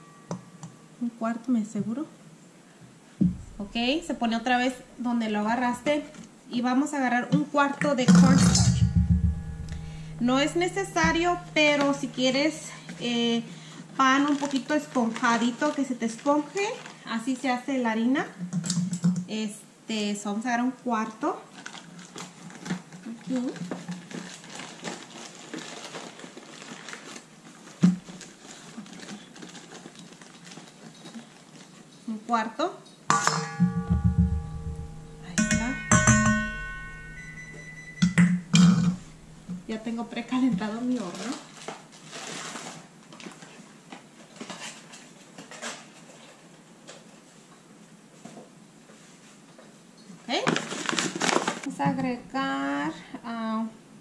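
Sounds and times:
sharp knock: 3.2s - 3.8s, 8.2s - 11.5s, 33.1s - 39.7s
kitchen items clinking: 8.0s - 13.2s, 33.1s - 41.6s.

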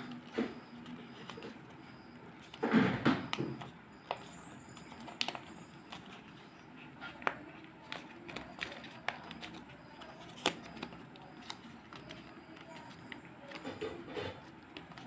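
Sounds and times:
paper rustling and crinkling: 0.0s - 15.0s
sharp paper clicks: 7.1s - 15.0s.

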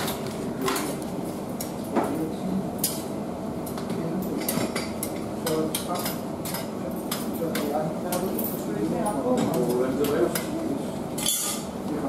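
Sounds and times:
kitchen background noise: 0.0s - 12.0s
metal tongs clinking on tray: 11.2s - 11.7s.

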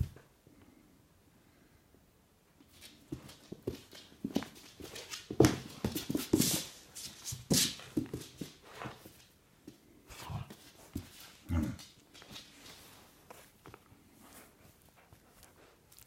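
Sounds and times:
toy and paws clattering on tiles: 2.6s - 9.8s, 10.6s - 13.8s.

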